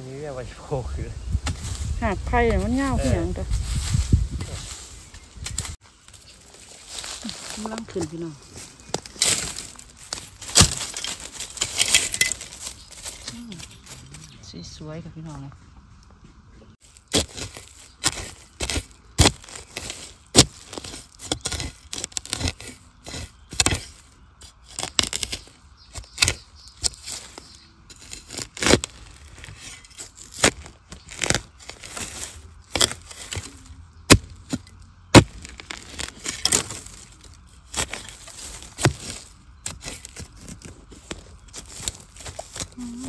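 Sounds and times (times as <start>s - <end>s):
soft crackling: 1.5s - 14.6s
bamboo cracking and snapping: 5.4s - 14.4s, 16.8s - 43.0s.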